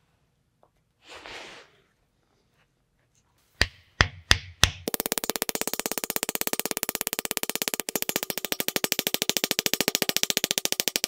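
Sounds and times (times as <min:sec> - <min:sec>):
rapid mallet strikes on wood: 0:03.6 - 0:11.0.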